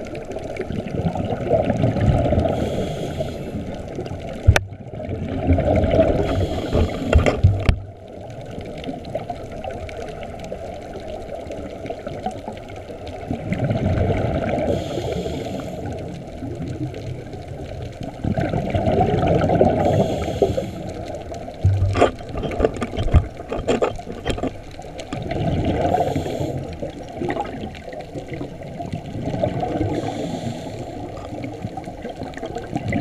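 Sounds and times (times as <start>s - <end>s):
exhaled bubbles gurgling underwater: 0.0s - 33.0s
regulator inhalation hiss: 2.5s - 3.6s, 6.2s - 7.3s, 14.7s - 16.1s, 19.8s - 21.1s, 25.9s - 26.9s, 29.8s - 31.1s.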